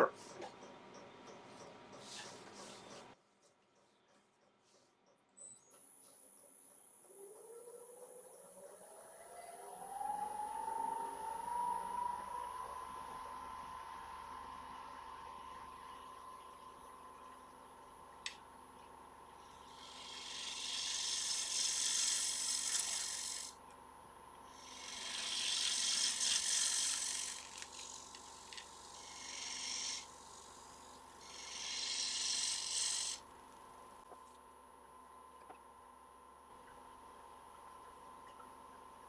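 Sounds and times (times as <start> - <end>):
lathe humming: 19.7 - 23.5, 24.6 - 33.2
gouge cutting wood hiss: 19.7 - 23.6, 24.6 - 33.2.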